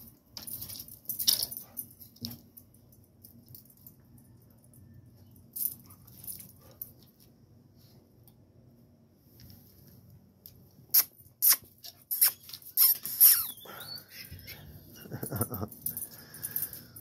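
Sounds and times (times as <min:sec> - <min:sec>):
dog whining: 0:12.2 - 0:15.1.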